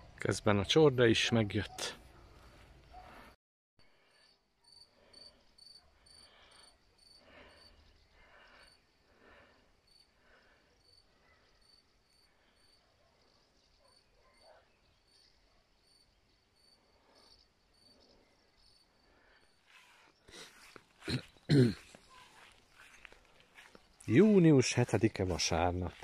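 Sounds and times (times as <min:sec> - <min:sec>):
crickets chirping: 0:04.1 - 0:24.9.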